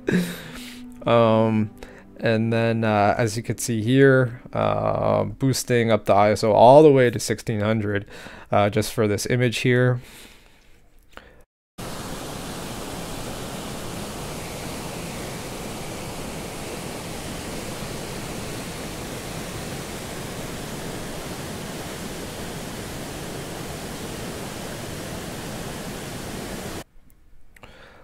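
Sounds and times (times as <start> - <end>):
waterfall pouring over rocks: 11.8 - 26.8.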